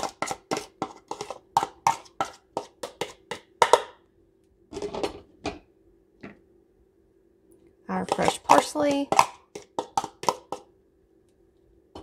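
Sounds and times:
bowl tapping on pot: 1.6 - 4.0.

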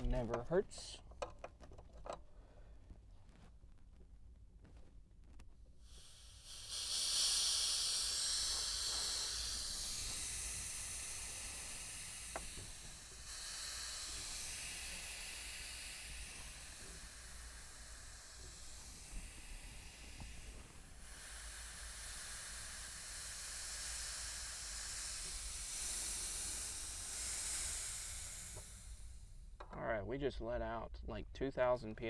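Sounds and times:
pressurised oxygen hissing: 5.7 - 29.6.

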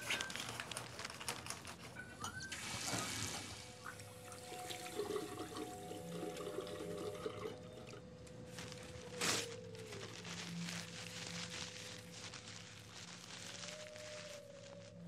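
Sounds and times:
faint hum: 0.0 - 15.0
water rushing in plumbing: 2.5 - 8.0.

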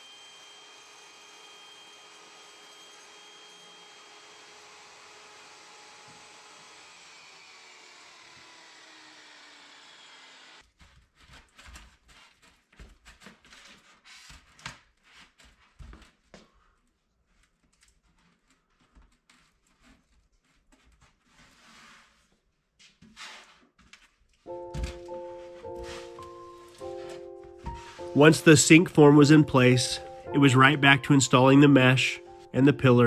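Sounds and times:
table saw motor whining down: 0.0 - 10.6.

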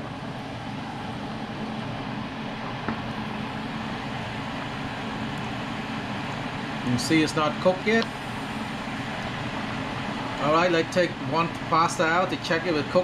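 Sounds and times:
pasta pot boiling: 7.6 - 11.0.

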